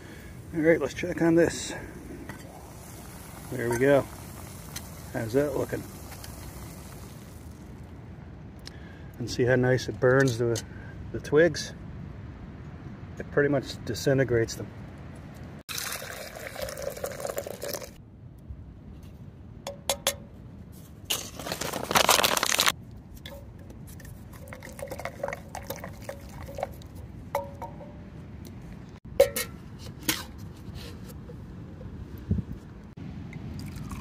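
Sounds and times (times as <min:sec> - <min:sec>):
water pouring from a metal pot: 0:00.3 - 0:07.8, 0:15.7 - 0:18.0, 0:24.1 - 0:27.7, 0:33.6 - 0:34.0.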